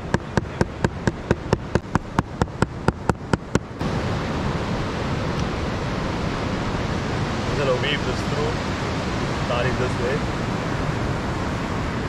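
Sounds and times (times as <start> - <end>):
knife chopping on wooden board: 0.0 - 3.7
surf: 0.0 - 12.0
wind: 0.0 - 12.0.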